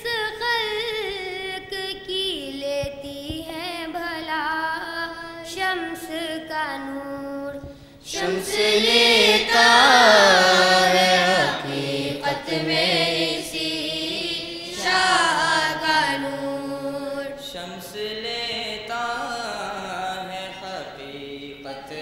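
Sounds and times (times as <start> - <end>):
group singing devotional song: 8.0 - 22.0.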